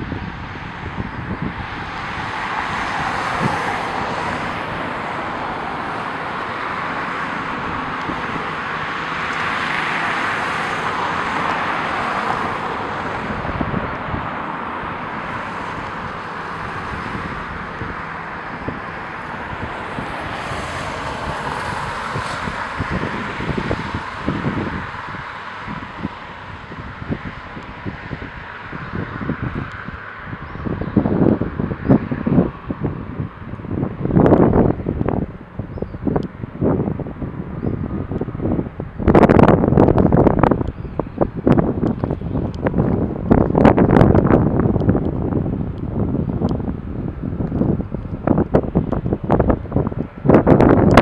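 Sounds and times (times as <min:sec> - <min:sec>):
steady rushing noise: 0:00.0 - 0:51.0
wind buffeting microphone: 0:00.0 - 0:51.0.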